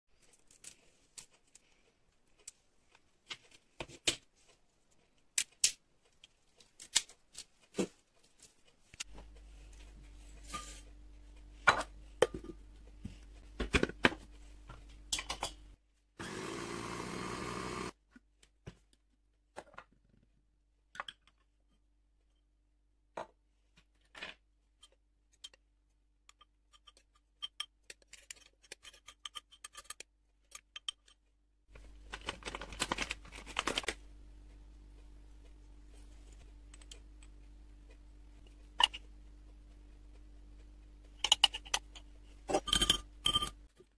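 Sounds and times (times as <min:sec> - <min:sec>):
food chopper motor running: 0:16.2 - 0:18.0.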